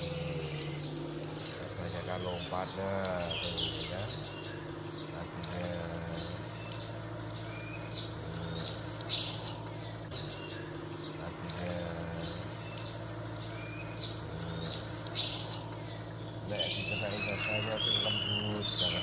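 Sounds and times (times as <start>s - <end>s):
garden hose spraying water: 0.0s - 19.0s
lovebird chirping: 0.0s - 19.0s
low steady hum: 0.0s - 19.0s.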